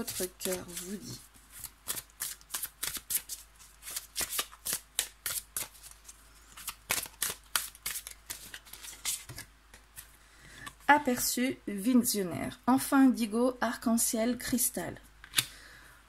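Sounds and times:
cards being shuffled by hand: 0.0 - 10.1.

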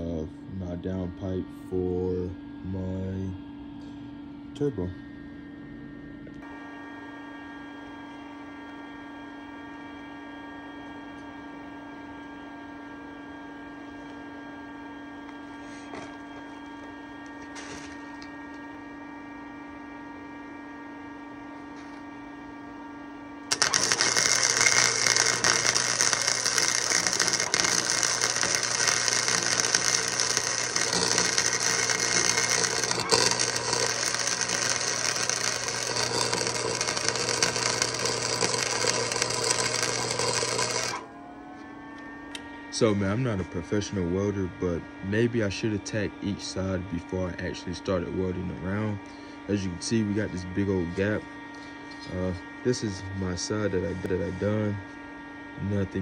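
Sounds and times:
welder humming: 0.0 - 55.0
arc welding crackle and sizzle: 16.8 - 18.3, 23.5 - 41.0.

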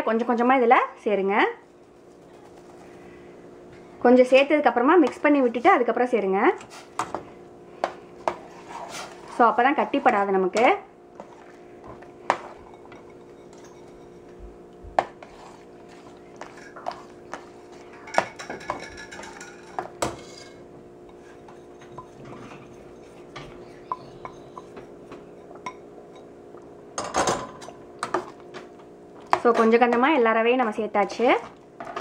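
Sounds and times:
steady hum: 0.0 - 32.0
metal spoon clinking on pot: 12.6 - 14.3.

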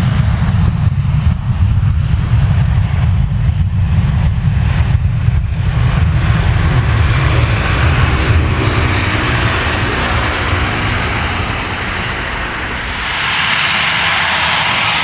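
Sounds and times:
jet engines rumbling: 0.0 - 15.0
jet engine hiss: 4.7 - 15.0.

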